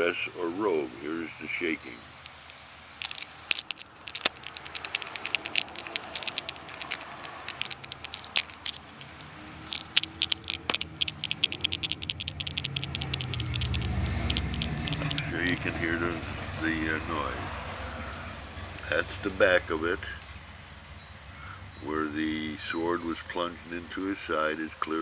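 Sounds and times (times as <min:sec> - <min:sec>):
small bones rattling: 0:02.2 - 0:15.7.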